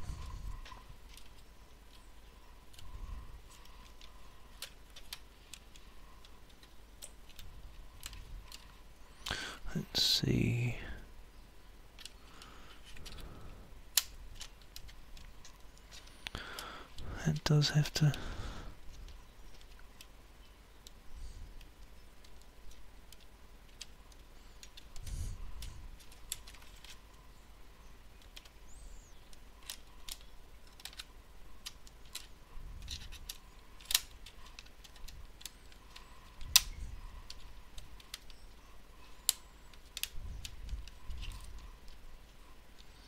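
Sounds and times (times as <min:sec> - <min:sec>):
plastic laptop parts clicking: 0:00.5 - 0:09.3, 0:11.9 - 0:17.4, 0:18.8 - 0:27.4, 0:28.1 - 0:43.0
sharp plastic snaps: 0:02.6 - 0:09.4, 0:11.9 - 0:27.2, 0:28.1 - 0:43.0.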